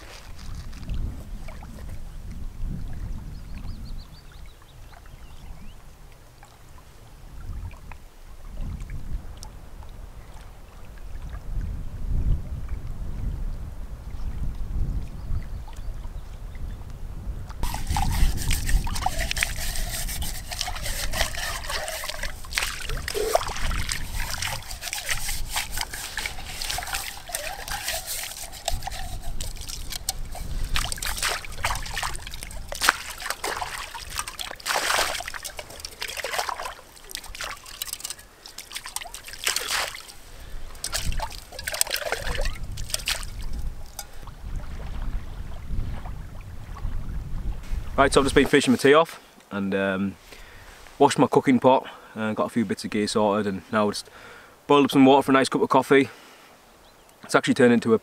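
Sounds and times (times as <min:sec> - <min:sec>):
water sloshing and splashing: 0:00.0 - 0:02.1, 0:17.6 - 0:47.0
wind rumble on microphone: 0:00.0 - 0:34.3, 0:40.2 - 0:48.6.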